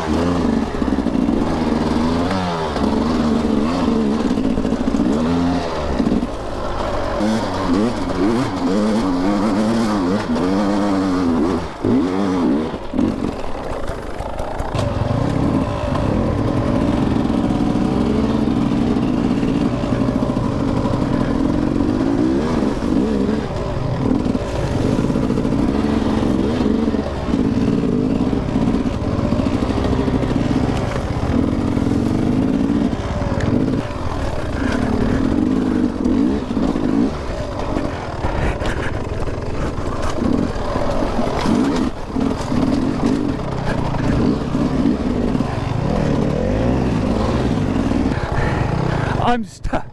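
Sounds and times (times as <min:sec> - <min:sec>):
dirt bike engine revving: 0:00.0 - 0:49.8.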